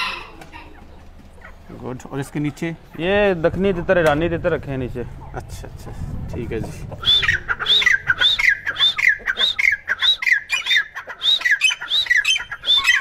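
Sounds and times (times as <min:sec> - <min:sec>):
francolin calling shrilly: 0:07.0 - 0:13.0.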